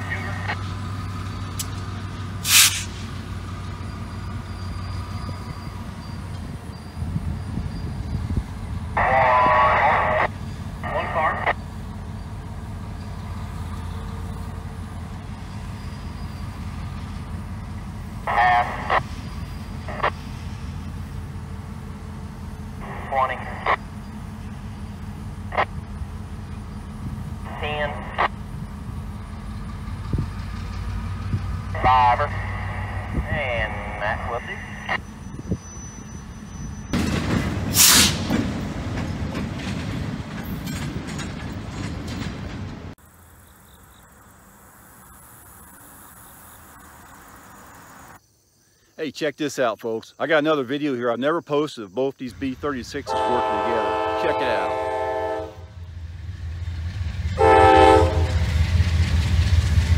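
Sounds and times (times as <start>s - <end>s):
diesel engine rumble: 0.0s - 48.2s, 50.1s - 59.9s
rolling train cars: 0.0s - 48.2s, 49.2s - 59.9s
loud air hiss: 2.4s - 3.1s, 37.7s - 38.3s.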